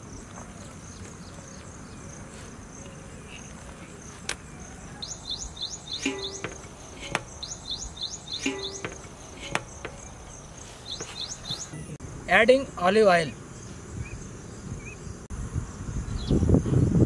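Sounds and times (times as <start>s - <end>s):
insects chirring: 0.0s - 17.0s
sharp knocks: 6.0s - 7.4s, 8.3s - 10.2s.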